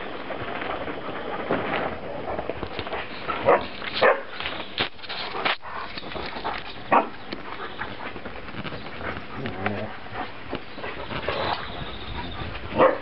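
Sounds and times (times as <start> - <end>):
steady rustle: 0.0 - 13.0
puppies squeaking and whimpering: 10.7 - 12.6.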